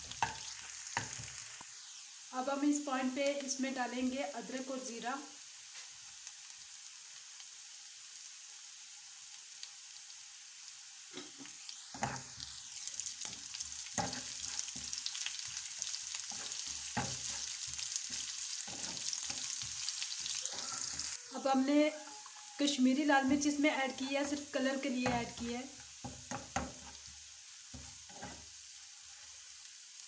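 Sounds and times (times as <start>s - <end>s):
spatula scraping and tapping pan: 0.0s - 1.4s, 11.9s - 12.5s, 13.2s - 21.2s, 25.0s - 28.6s
onions sizzling in hot oil: 0.0s - 30.0s.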